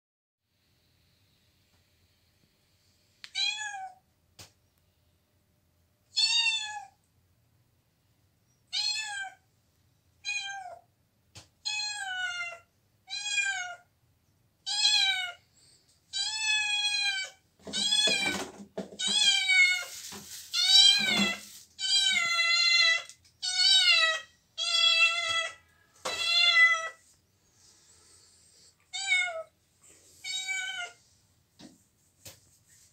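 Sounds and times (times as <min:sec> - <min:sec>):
cat meowing: 0:06.1 - 0:07.0, 0:10.2 - 0:10.8, 0:11.6 - 0:13.9, 0:14.6 - 0:15.4, 0:20.6 - 0:27.0, 0:28.9 - 0:29.5, 0:30.2 - 0:31.0.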